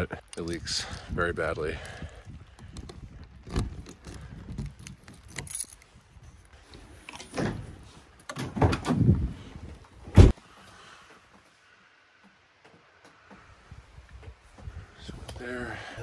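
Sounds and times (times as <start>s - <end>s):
keys jangling: 4.6s - 5.9s.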